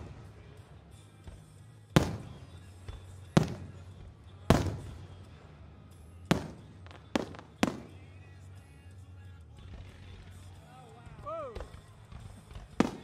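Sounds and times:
firework shells booming: 0:01.4 - 0:05.4, 0:06.2 - 0:08.2, 0:12.8 - 0:13.0.

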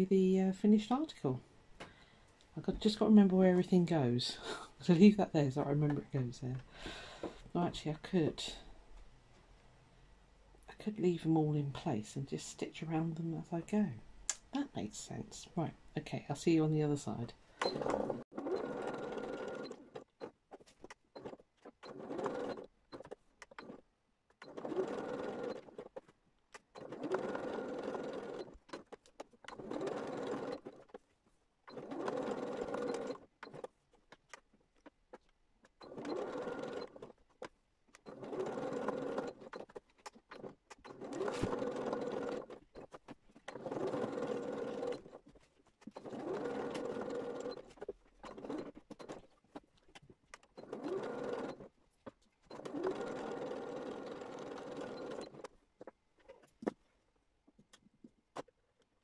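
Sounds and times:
sewing machine stitching: 0:17.1 - 0:56.5.

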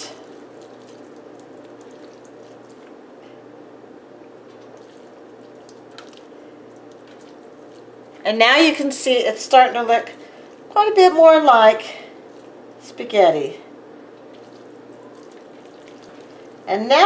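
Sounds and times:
soft squishing: 0:00.0 - 0:09.0, 0:09.7 - 0:11.1, 0:12.0 - 0:13.0, 0:13.7 - 0:16.7
water dripping: 0:00.1 - 0:03.0, 0:04.2 - 0:08.1, 0:14.2 - 0:16.7.

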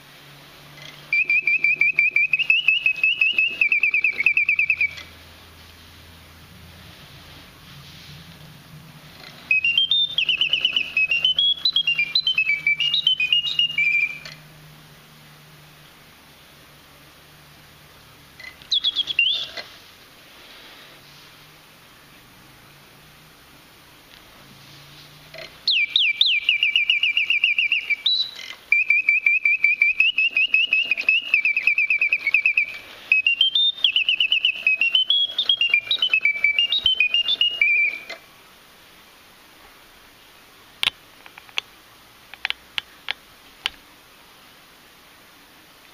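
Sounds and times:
mechanical bird whistle trilling: 0:00.8 - 0:05.1, 0:09.4 - 0:14.4, 0:18.4 - 0:19.7, 0:25.4 - 0:38.2.

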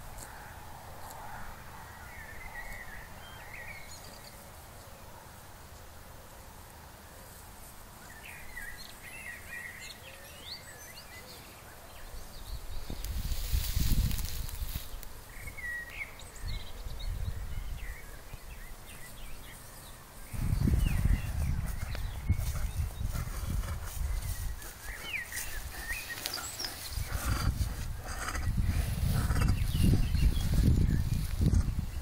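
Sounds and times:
small birds chirping: 0:08.0 - 0:32.0
wind on microphone: 0:12.4 - 0:15.7, 0:16.4 - 0:18.6, 0:20.3 - 0:32.0.

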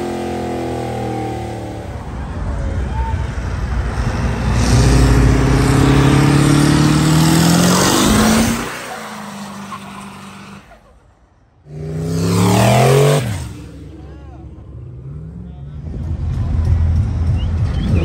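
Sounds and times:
vehicle engines accelerating past: 0:03.4 - 0:10.7.

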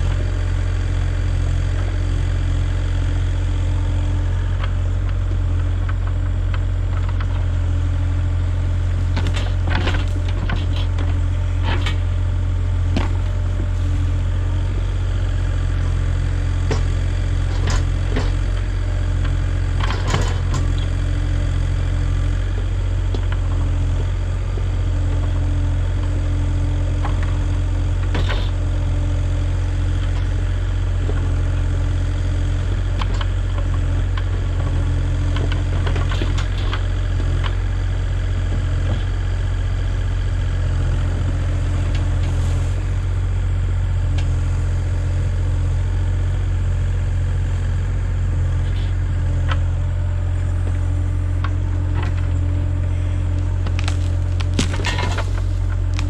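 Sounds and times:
excavator diesel engine running: 0:00.0 - 0:56.0
bucket clicking and scraping soil: 0:53.4 - 0:56.0.

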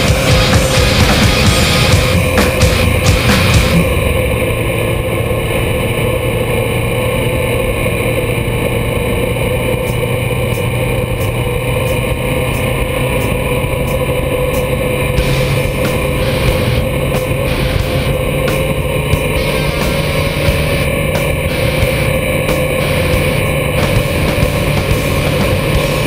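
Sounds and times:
motorcycle engine cruising: 0:00.0 - 0:26.0.

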